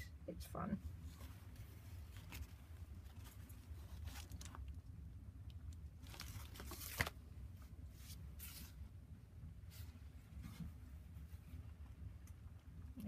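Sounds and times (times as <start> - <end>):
paper pages rustling: 1.9 - 4.7, 6.0 - 7.2.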